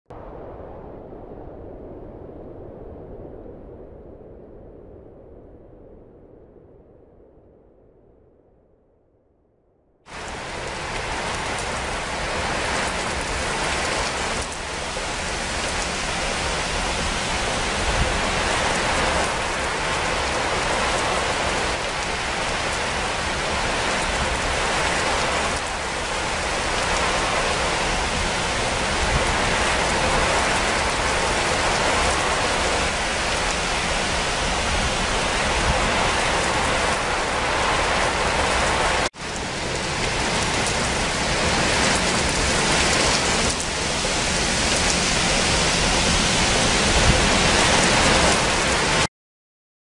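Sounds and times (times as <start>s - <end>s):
rain falling: 10.1s - 49.1s.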